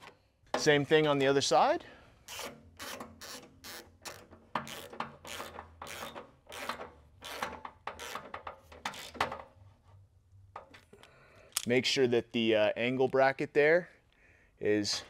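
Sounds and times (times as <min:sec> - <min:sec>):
hand ratchet pawl rasping: 0:02.2 - 0:09.4.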